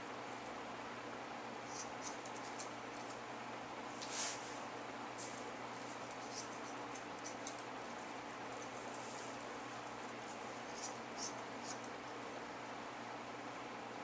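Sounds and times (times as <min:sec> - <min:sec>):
faint steady hum: 0:00.0 - 0:14.0
scissors snipping fur: 0:01.7 - 0:03.2, 0:06.1 - 0:07.7, 0:10.7 - 0:11.9.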